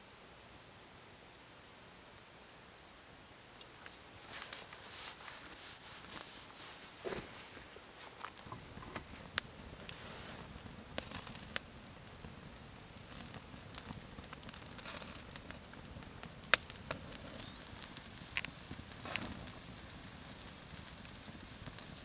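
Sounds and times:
campfire crackling: 0.0 - 22.0
light hiss: 0.0 - 22.0
sharp fire pops: 8.2 - 22.0.

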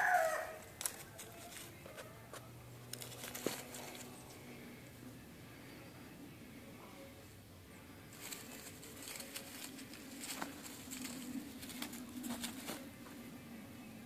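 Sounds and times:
roosters fighting: 0.0 - 6.3, 7.0 - 14.0
wings flapping and scuffling on straw: 2.9 - 4.3, 8.1 - 13.3.

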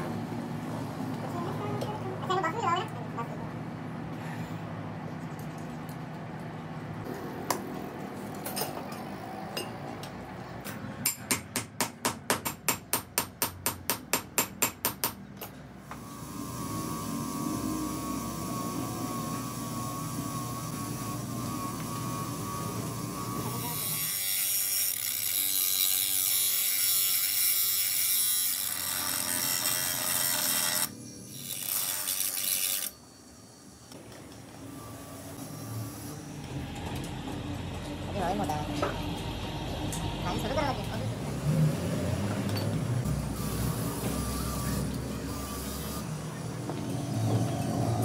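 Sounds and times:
electric grinder grinding steel: 16.0 - 33.0.

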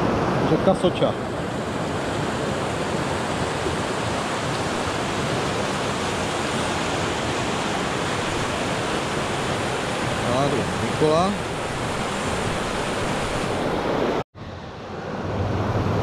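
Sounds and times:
river rapids rushing over rocks: 1.4 - 14.2.

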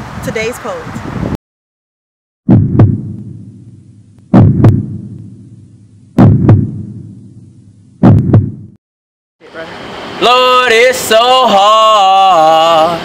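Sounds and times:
heartbeat thumps: 2.4 - 8.8.

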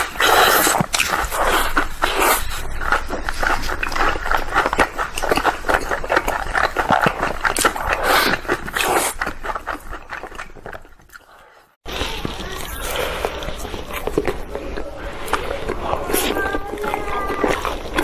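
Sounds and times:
wet chewing and lip smacking: 0.0 - 18.0
crisp crunching: 11.9 - 18.0.

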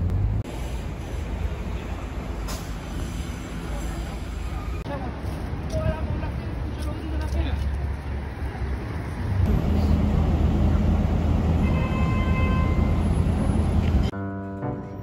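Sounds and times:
car engines humming: 0.0 - 4.9, 8.3 - 14.1.

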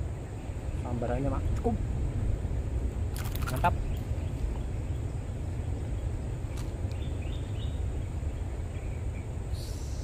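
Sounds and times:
bird chirps: 3.5 - 10.0.

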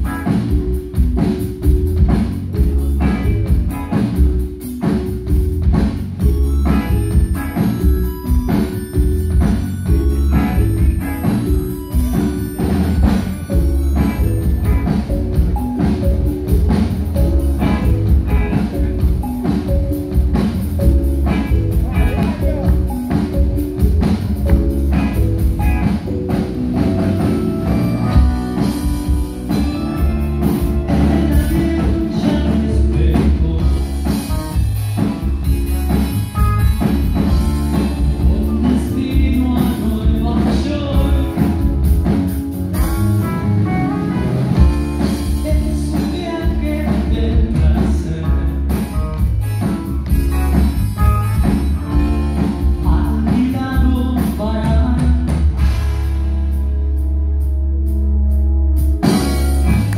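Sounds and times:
drum kit: 0.0 - 57.5, 58.3 - 59.9
electric guitars: 0.0 - 57.5, 58.8 - 59.9
keyboard: 0.0 - 59.9
lead singer singing: 30.8 - 34.2, 38.2 - 41.8, 45.3 - 48.8, 52.8 - 55.4.

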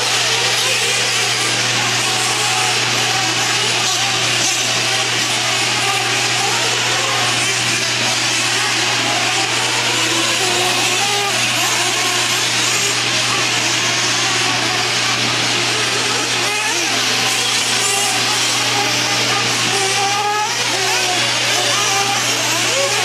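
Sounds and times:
small engines buzzing at high pitch: 0.0 - 23.0.

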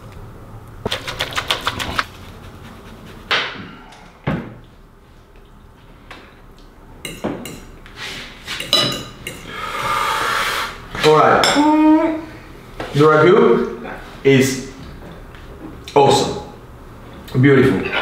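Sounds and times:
utensils clicking and tapping: 0.9 - 2.1, 8.6 - 9.5
forks clinking on plates: 7.1 - 7.7, 8.5 - 9.5.

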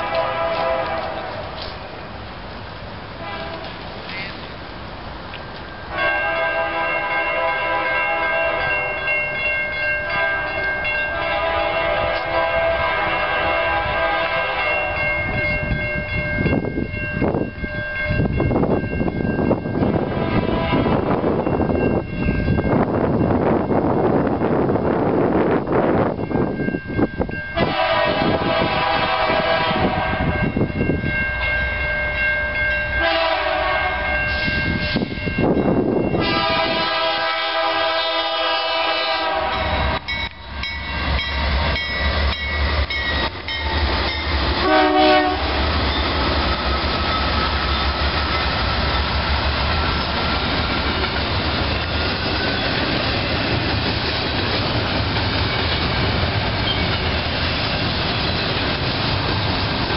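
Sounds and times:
locomotive air horn blasts: 0.0 - 1.6, 3.2 - 3.8, 5.9 - 8.6, 10.1 - 15.0, 20.1 - 21.2, 27.5 - 30.6, 33.0 - 35.1, 36.2 - 40.1, 44.6 - 45.6
diesel locomotive engine rumble: 0.0 - 59.9
train wheel noise: 0.0 - 59.9.

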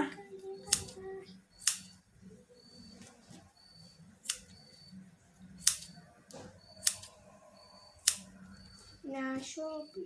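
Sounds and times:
scissors snipping fabric: 0.6 - 1.0, 5.6 - 7.2.

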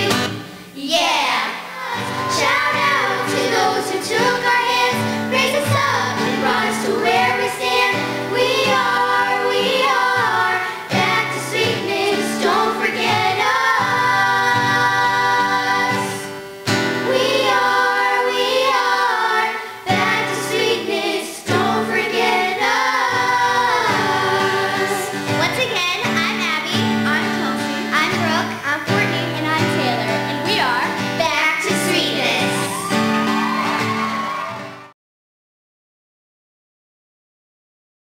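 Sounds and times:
girls singing in harmony: 0.0 - 25.5
acoustic guitar: 0.0 - 35.0.

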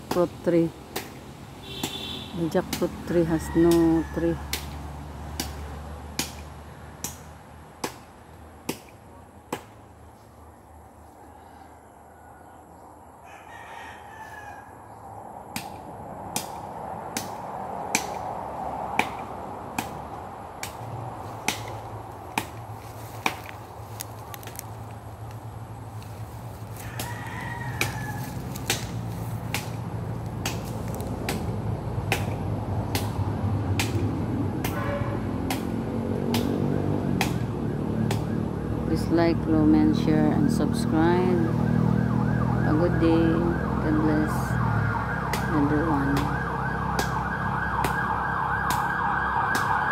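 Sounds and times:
rooster crowing: 3.2 - 4.5, 11.0 - 15.0, 26.6 - 28.7
blade chopping into tree: 4.5 - 9.8, 18.9 - 23.6, 26.9 - 33.2, 33.8 - 38.4.

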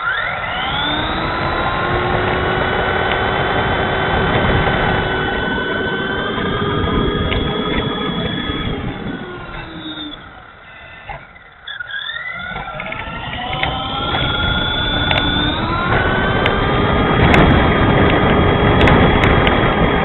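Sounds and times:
electric motor and gears whining: 0.0 - 20.0
tyre and drivetrain noise: 0.0 - 20.0
sharp clicks: 7.1 - 16.6.

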